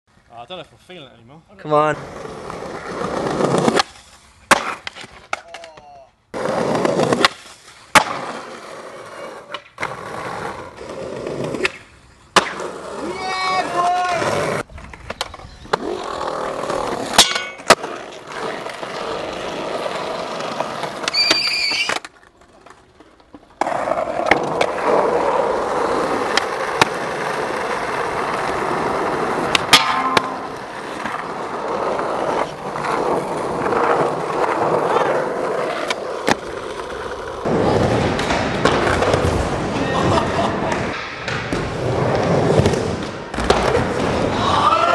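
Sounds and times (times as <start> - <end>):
skateboard wheels rolling on concrete: 0.1 - 44.9
skateboard tail popping and landing: 2.9 - 12.8, 14.5 - 39.7.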